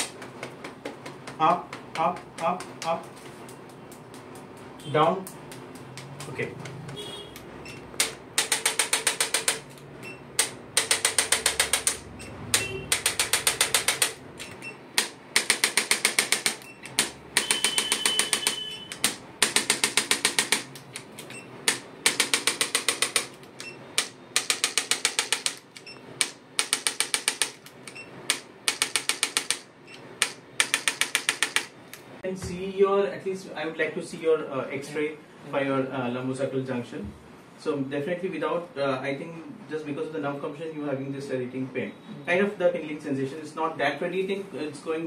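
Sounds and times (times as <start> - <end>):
electric percussion device tapping: 5.2 - 31.8.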